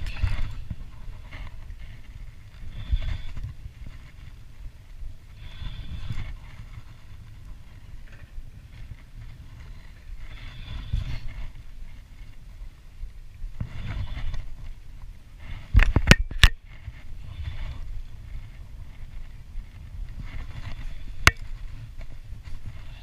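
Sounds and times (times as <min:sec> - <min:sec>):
handling rumble: 0:00.0 - 0:23.0
wind noise on microphone: 0:00.0 - 0:23.0.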